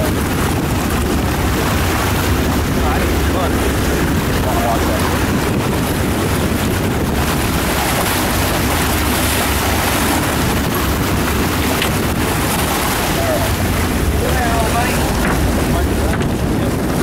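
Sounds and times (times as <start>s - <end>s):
water rushing along boat hull: 0.0s - 17.0s
wind rumble on microphone: 0.0s - 17.0s.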